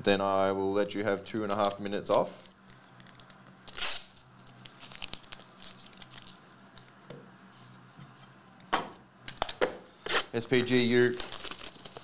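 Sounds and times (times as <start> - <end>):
foil wrapper crinkling: 1.0 - 6.9, 10.7 - 12.0.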